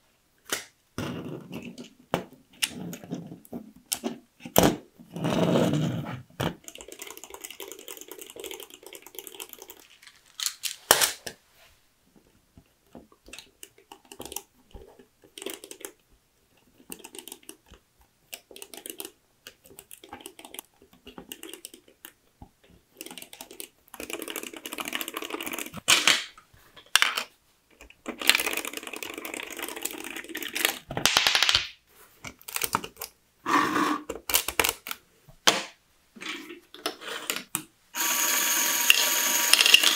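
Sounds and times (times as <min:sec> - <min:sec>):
plastic bricks clicking and snapping: 0:06.4 - 0:11.4, 0:22.9 - 0:33.2, 0:34.1 - 0:35.8
plastic parts rattling: 0:06.5 - 0:11.3, 0:22.9 - 0:31.6, 0:32.3 - 0:33.1.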